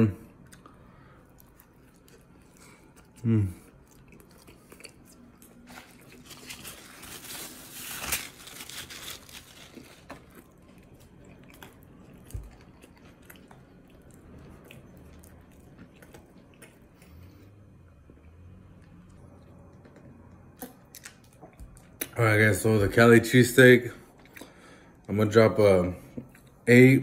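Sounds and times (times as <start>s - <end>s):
chewing and biting food: 0.4s - 7.2s, 9.3s - 22.2s.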